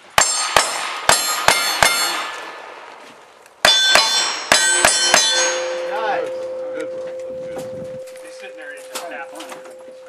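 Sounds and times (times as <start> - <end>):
steel target clanging: 0.2 - 2.4, 3.6 - 7.4.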